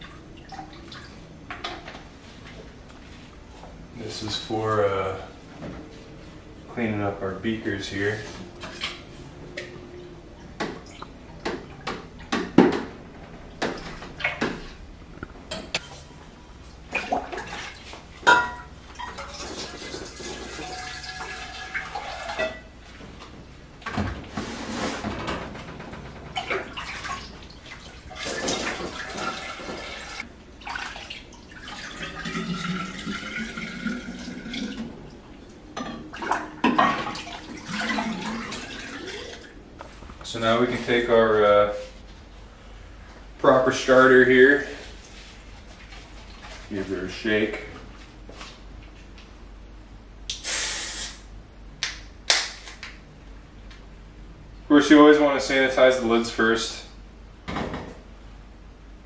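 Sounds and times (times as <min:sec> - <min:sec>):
water sloshing and pouring: 0:00.0 - 0:01.9, 0:16.8 - 0:23.2, 0:26.1 - 0:40.0, 0:44.5 - 0:46.9
glassware clinking: 0:18.3 - 0:19.3.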